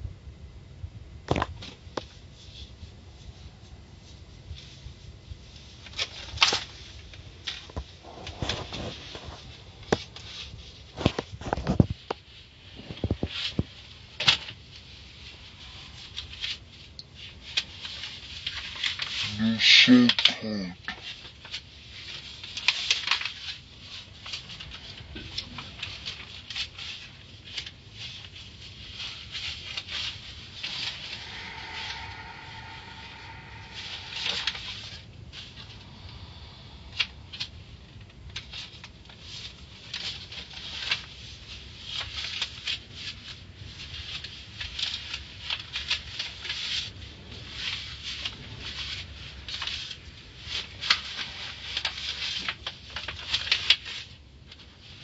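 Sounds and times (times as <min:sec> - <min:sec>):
low steady rumble: 0:00.0 - 0:50.5
short whine: 0:30.4 - 0:37.2.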